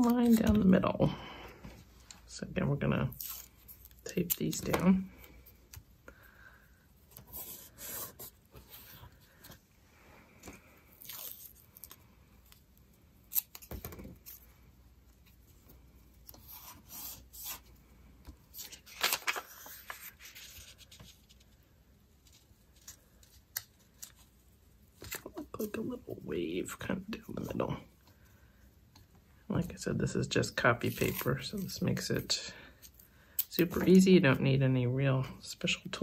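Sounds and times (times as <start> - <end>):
tape tearing: 13.2 - 14.4
paper rustling and sliding: 18.5 - 21.6.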